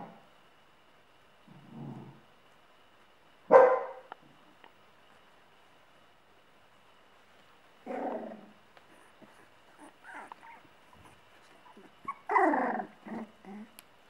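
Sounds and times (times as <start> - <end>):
dog barking and whining: 3.5 - 4.1, 9.2 - 13.7.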